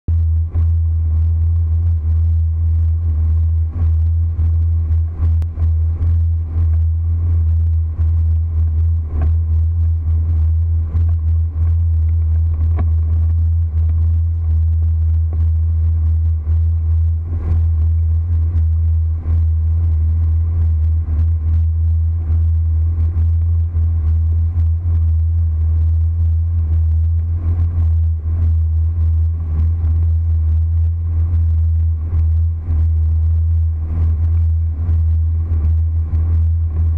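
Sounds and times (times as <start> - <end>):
boat motor droning: 0.1 - 36.9.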